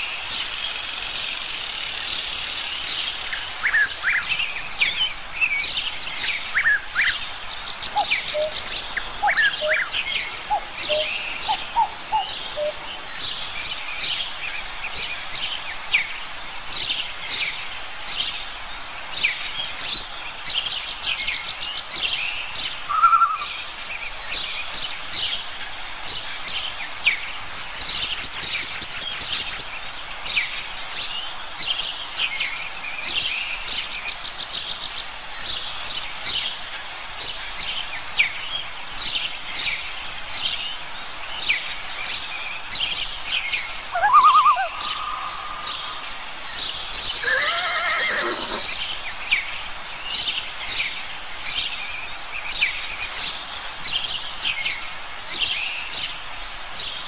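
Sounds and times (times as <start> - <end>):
lower whistled bird notes: 0.0 - 5.6, 43.9 - 46.1
songbirds chirping and singing: 26.1 - 36.6, 41.3 - 51.8
high-pitched bird trill: 44.0 - 45.9.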